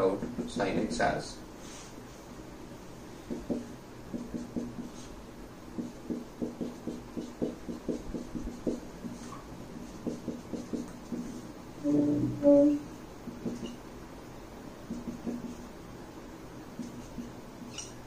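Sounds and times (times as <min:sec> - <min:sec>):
marker pen writing on whiteboard: 0:00.0 - 0:01.0, 0:03.2 - 0:11.5, 0:13.2 - 0:13.8, 0:14.8 - 0:15.7, 0:16.8 - 0:18.0.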